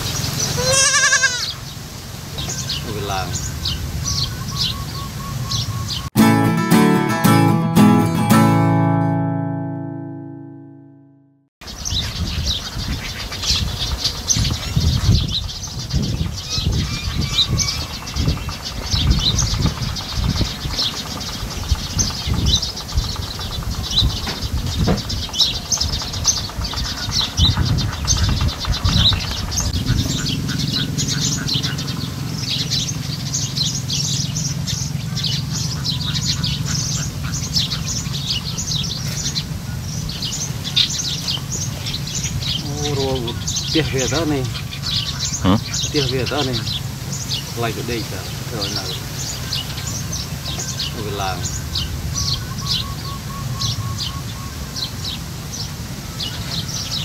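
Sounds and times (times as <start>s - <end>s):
small birds chirping: 0.0s - 6.2s, 11.6s - 57.0s
irregular low rumble: 28.4s - 37.8s
steady low hum: 29.2s - 40.4s.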